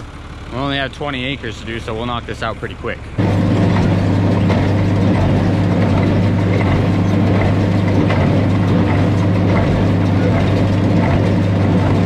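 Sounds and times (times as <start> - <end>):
tractor engine running: 0.0 - 12.0
baler mechanism clattering: 3.2 - 12.0.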